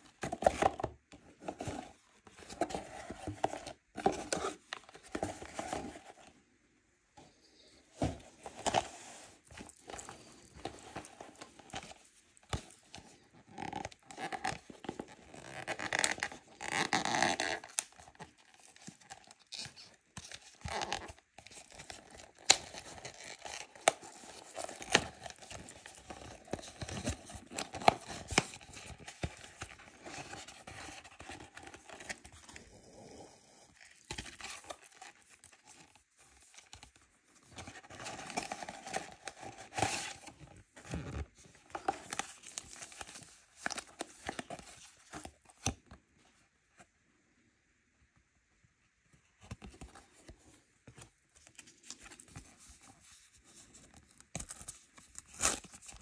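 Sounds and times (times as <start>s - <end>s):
cardboard tearing and creasing: 13.5s - 32.3s.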